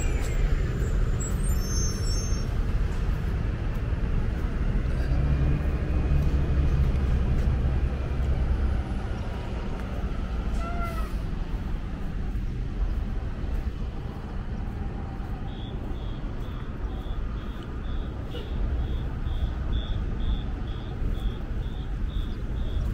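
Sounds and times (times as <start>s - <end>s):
heavy vehicle engine rumbling: 0.0s - 22.9s
traffic rumble: 0.0s - 22.9s.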